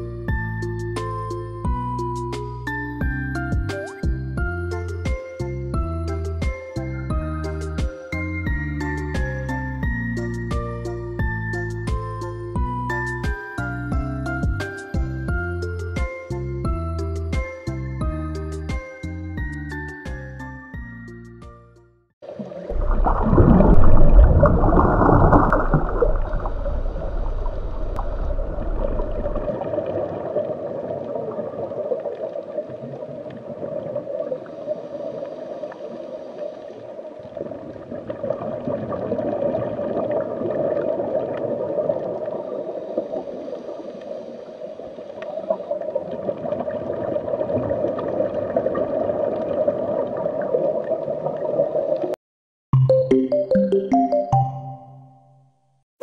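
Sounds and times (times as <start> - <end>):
muffled underwater gurgling drone: 22.3 - 50.5
rush of water with deep rumble: 22.7 - 31.8.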